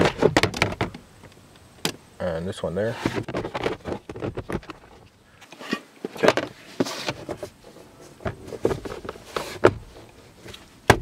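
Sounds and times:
plastic scrape: 2.9 - 10.6.

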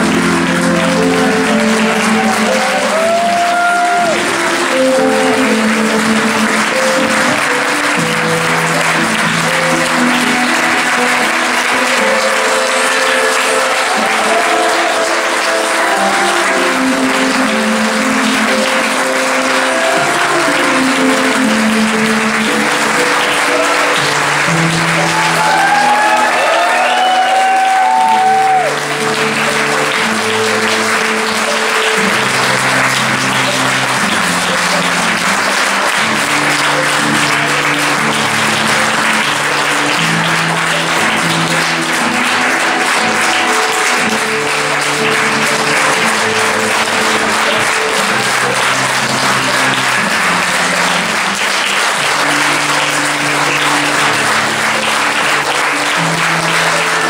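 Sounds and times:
audience clapping: 0.0 - 57.0.

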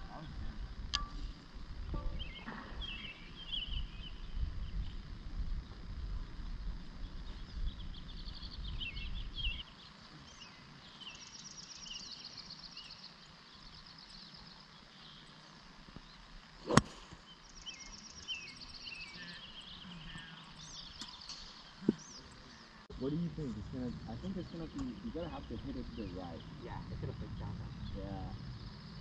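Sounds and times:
birds chirping and trilling: 0.0 - 29.0
golf club striking ball: 16.6 - 17.1
low rumble: 21.8 - 29.0.

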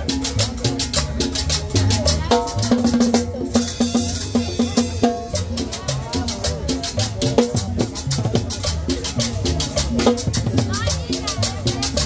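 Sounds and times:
fast percussion strokes: 0.0 - 12.0
latin dance music: 0.0 - 12.0.

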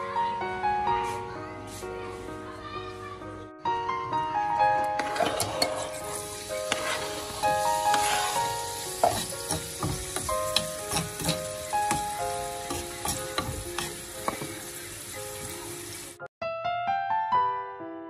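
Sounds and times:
soft piano background music: 0.0 - 18.0
spatula scraping pan: 5.0 - 14.6
food sizzling in hot oil: 5.0 - 16.3.

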